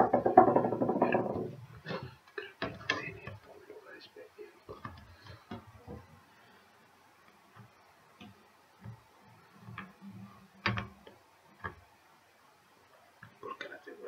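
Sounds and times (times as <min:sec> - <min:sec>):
plastic figure clicking and knocking: 0:00.0 - 0:01.6.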